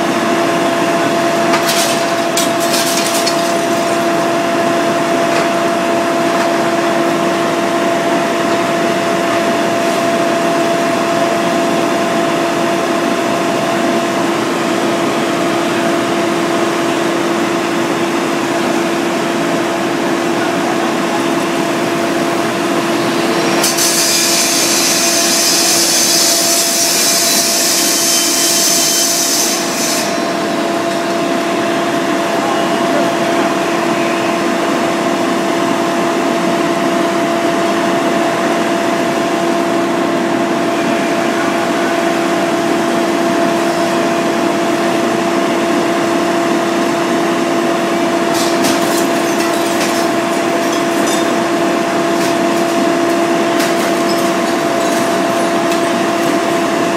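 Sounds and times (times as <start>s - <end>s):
machinery droning: 18.9s - 26.0s.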